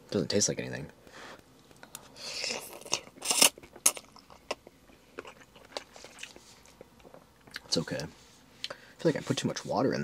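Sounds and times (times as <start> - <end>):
person chewing: 2.2 - 7.7.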